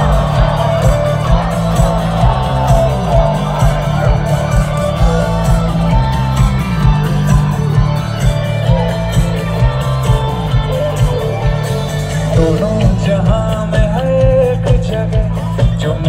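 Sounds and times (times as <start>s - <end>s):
person singing: 0.0s - 7.9s, 12.2s - 16.0s
drums beating: 0.0s - 16.0s
live band playing loud music: 0.0s - 16.0s.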